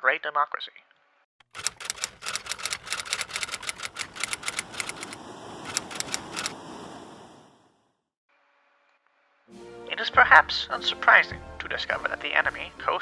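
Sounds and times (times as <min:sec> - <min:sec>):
typewriter keys striking: 0:01.5 - 0:06.5
hiss: 0:03.5 - 0:07.8.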